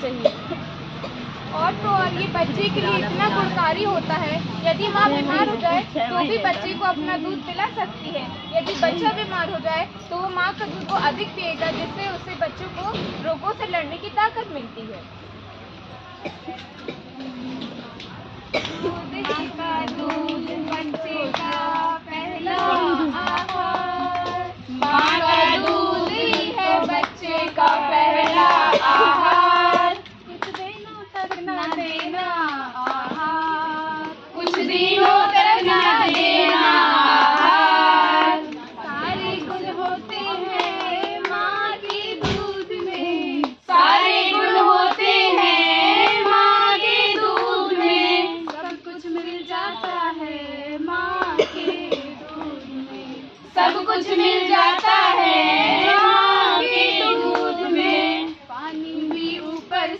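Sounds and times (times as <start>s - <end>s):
women singing: 1.5s - 7.6s, 18.5s - 59.9s
people clapping along: 17.9s - 59.9s.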